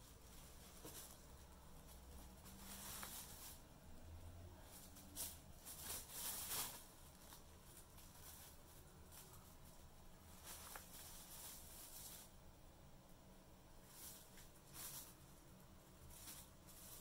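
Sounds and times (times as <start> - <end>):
plastic bag rustling: 0.0 - 12.5, 13.8 - 17.0.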